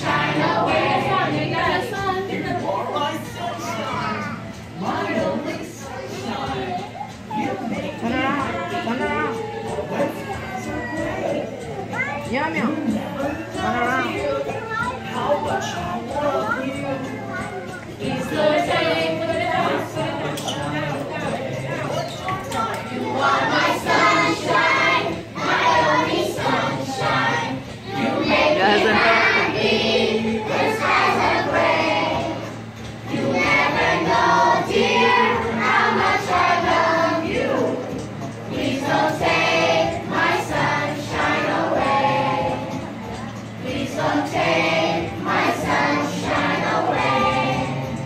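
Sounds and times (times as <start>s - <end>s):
children singing: 0.0s - 2.4s, 17.3s - 20.7s, 22.8s - 48.0s
music: 0.0s - 48.0s.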